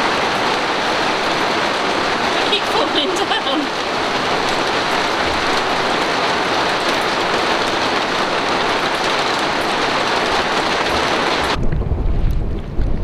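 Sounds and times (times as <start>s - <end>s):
hail and rain on a roof: 0.0s - 13.0s.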